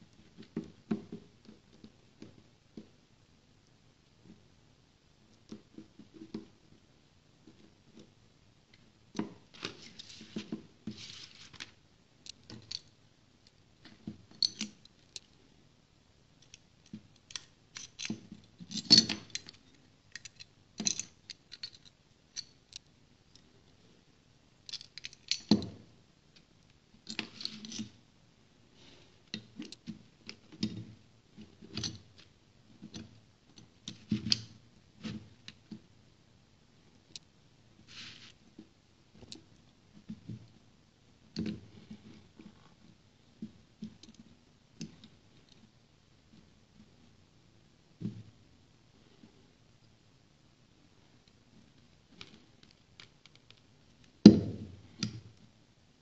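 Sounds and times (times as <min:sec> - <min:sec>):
metal parts clicking and scraping: 0:14.4 - 0:15.4, 0:16.4 - 0:22.9, 0:24.6 - 0:25.6.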